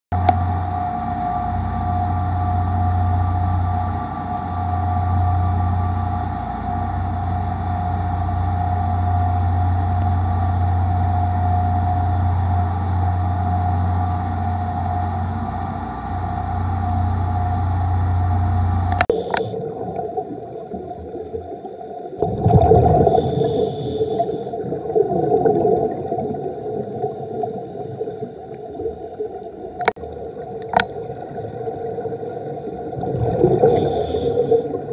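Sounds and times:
outboard motors droning: 0:00.2 - 0:34.9
underwater scuba bubbles gurgling: 0:19.0 - 0:34.9.

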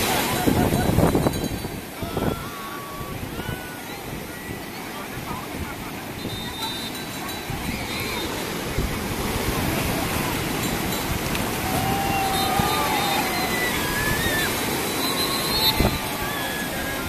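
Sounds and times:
sea surf breaking: 0:00.0 - 0:17.0
distant voices calling out: 0:01.8 - 0:17.0.

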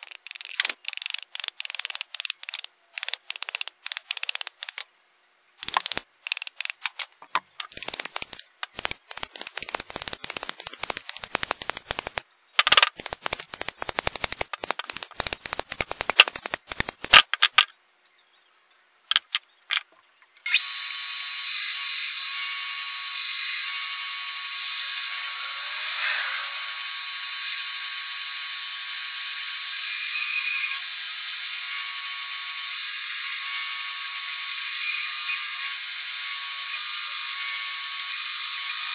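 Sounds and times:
band saw whining: 0:20.5 - 0:30.7.

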